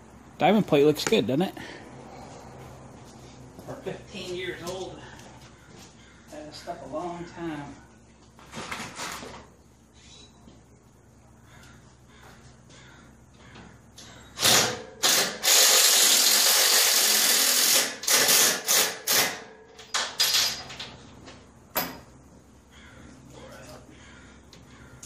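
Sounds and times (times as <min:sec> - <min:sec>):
power drill drilling into metal: 0:14.4 - 0:19.4.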